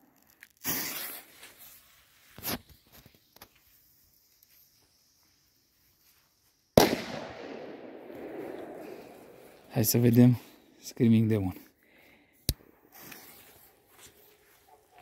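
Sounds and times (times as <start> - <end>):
firecracker bang: 6.8 - 9.3
rolling echo: 6.8 - 9.7.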